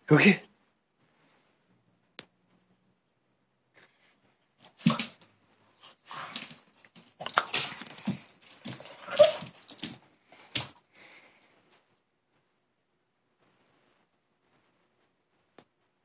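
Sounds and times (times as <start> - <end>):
dog excited vocal noises: 4.7 - 5.2, 5.8 - 10.8.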